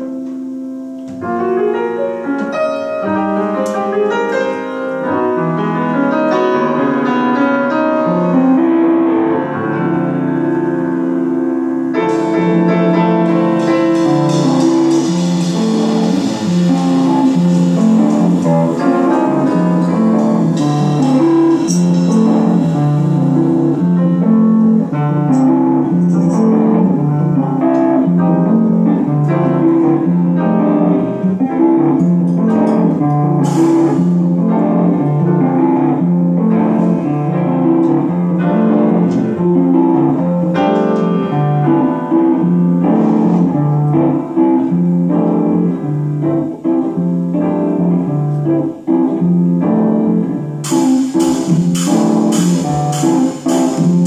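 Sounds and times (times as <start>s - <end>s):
electric guitar: 0.0s - 54.0s
piano: 0.0s - 54.0s
drum kit with cymbals: 11.7s - 30.8s, 31.5s - 41.2s, 41.9s - 44.4s, 50.6s - 54.0s.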